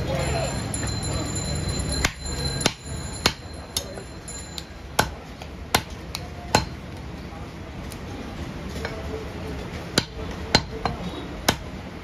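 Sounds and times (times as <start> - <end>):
knife striking wooden chopping block: 5.0 - 6.8.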